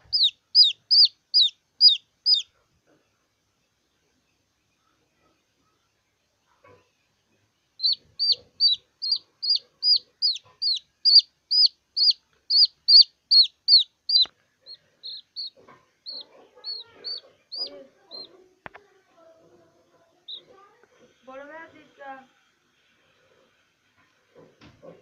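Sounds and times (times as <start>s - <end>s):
baby chick peeping: 0.0s - 3.1s, 7.7s - 21.6s.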